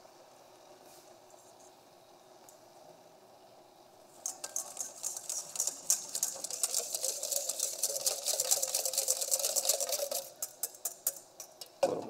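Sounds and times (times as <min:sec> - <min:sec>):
whisk clattering in metal bowl: 0:04.2 - 0:11.8.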